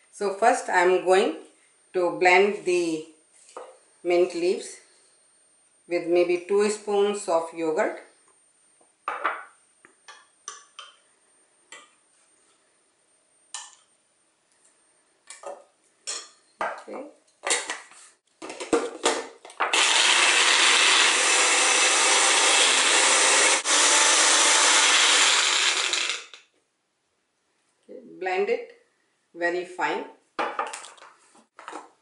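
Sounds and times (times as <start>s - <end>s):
blender motor running: 19.7s - 26.4s.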